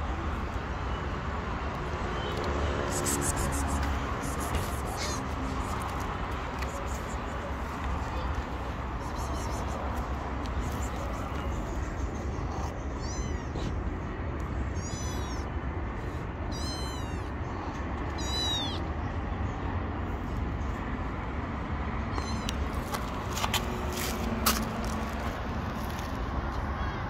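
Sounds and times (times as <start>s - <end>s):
kitten meowing: 4.8s - 5.3s, 9.0s - 9.8s, 12.5s - 13.8s, 14.7s - 15.5s, 16.5s - 17.3s, 18.1s - 18.9s, 22.1s - 22.6s.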